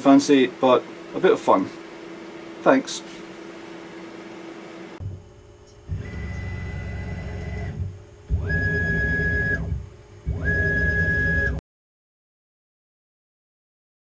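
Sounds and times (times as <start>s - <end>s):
mill motors whining: 3.3s - 11.6s.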